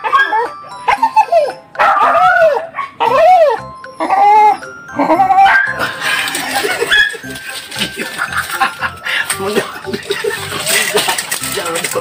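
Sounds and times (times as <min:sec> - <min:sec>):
dog giving high cries: 0:00.0 - 0:05.9, 0:06.7 - 0:07.4
background music: 0:00.0 - 0:12.0.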